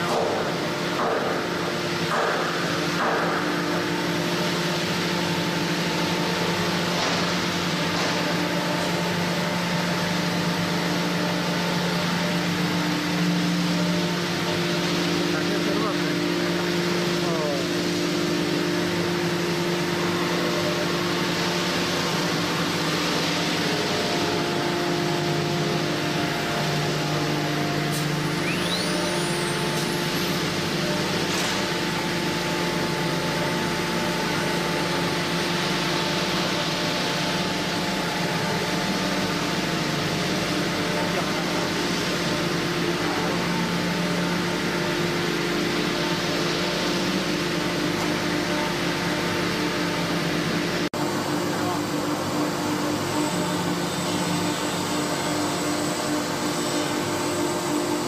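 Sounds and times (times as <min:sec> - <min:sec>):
router spindle whine: 0:23.8 - 0:58.0
brief rising whistle: 0:28.3 - 0:29.9.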